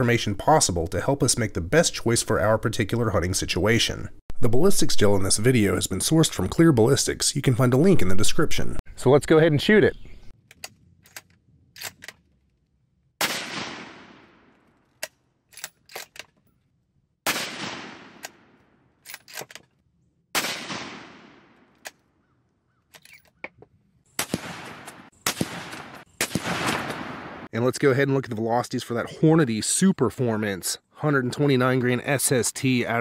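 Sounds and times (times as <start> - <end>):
rifle bolt clicks: 10.5 - 12.3, 14.8 - 16.4, 19.0 - 19.8
rifle shots echoing: 13.2 - 14.8, 17.2 - 18.8, 20.3 - 21.8, 24.2 - 27.5.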